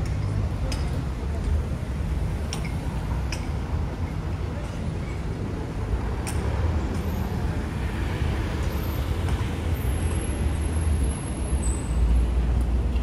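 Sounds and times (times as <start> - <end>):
cars driving past: 5.5 - 13.0.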